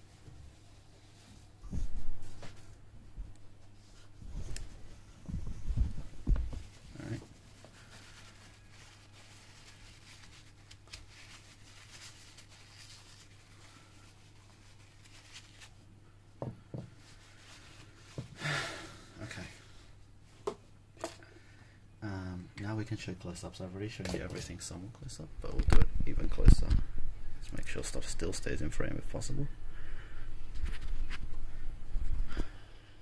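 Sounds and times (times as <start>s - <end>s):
tissue rustling: 3.5s - 15.9s, 16.9s - 18.2s.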